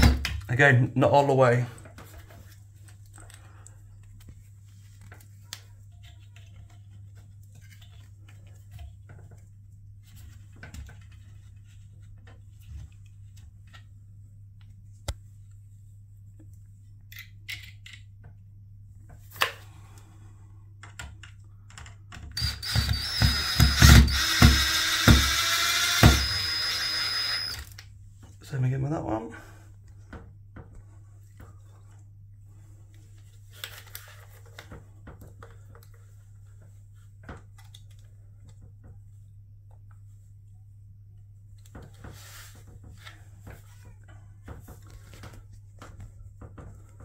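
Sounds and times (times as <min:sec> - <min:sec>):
faint clicks and handling taps: 0:20.8 - 0:22.3
cordless drill driving a screw: 0:22.4 - 0:27.8.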